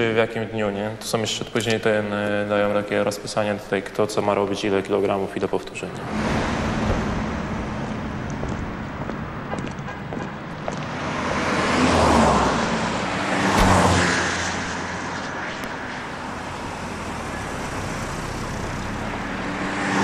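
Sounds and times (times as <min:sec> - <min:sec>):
car engine and tyre noise: 0:05.6 - 0:20.0.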